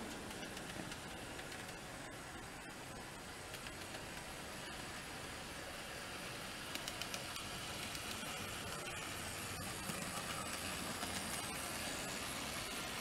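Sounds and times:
wheels clicking over rail joints: 0.0s - 1.8s, 6.7s - 8.4s
model train motor whir: 3.5s - 13.0s.

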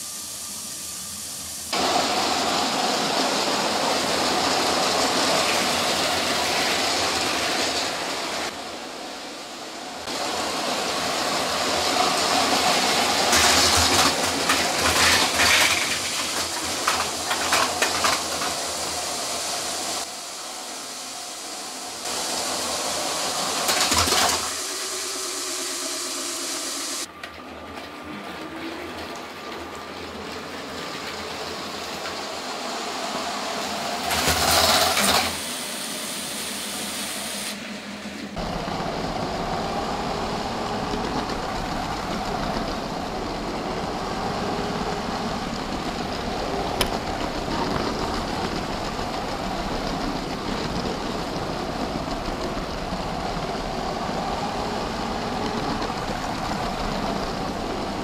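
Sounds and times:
plastic wheels rattling: 13.3s - 18.8s.

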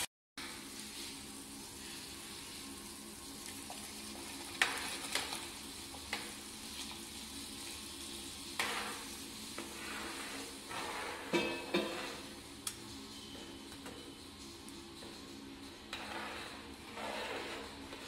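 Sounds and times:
semolina sizzling in a pan: 0.4s - 13.4s.

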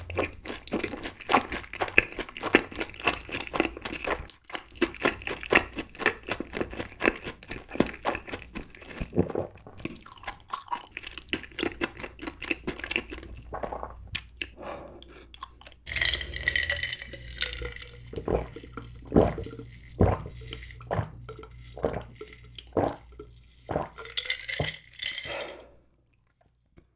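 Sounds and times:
wet chewing and mouth clicks: 0.0s - 24.5s
drinking gulps: 13.0s - 26.0s.

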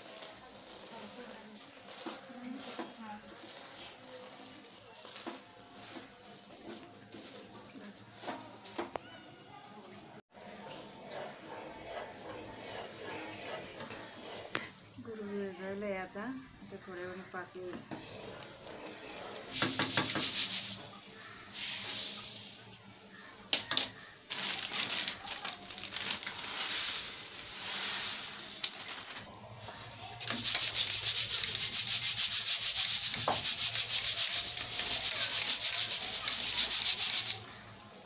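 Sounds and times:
wooden spatula scraping a pot: 0.0s - 8.6s, 10.3s - 22.2s, 24.0s - 37.6s
puffed rice rustling in a sieve: 0.0s - 8.8s, 16.8s - 37.6s.

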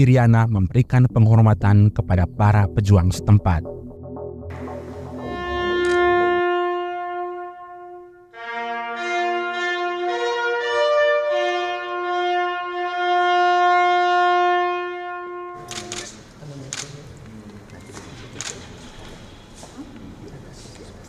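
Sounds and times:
brass instruments playing long notes: 4.5s - 15.9s.

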